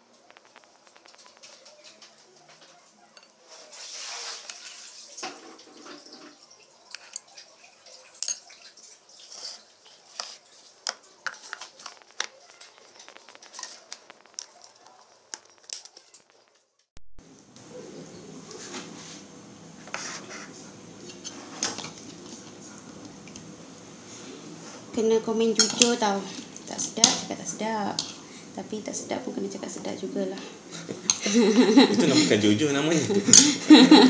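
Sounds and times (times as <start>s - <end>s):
spoon scraping plates: 3.2s - 14.8s, 19.8s - 22.6s, 25.5s - 27.3s.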